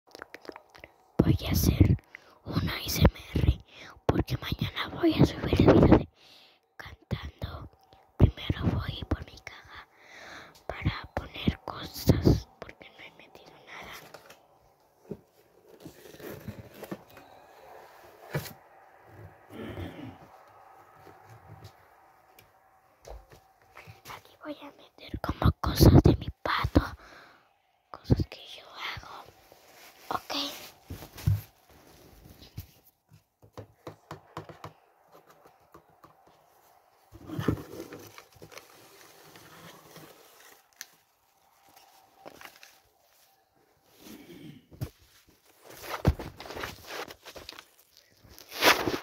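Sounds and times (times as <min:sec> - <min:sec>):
rustle of box and paper: 0:15.3 - 0:17.4, 0:37.4 - 0:43.4, 0:45.0 - 0:49.0
knocks and taps on cardboard box: 0:33.4 - 0:34.8
taps and clicks on cardboard: 0:33.4 - 0:36.4.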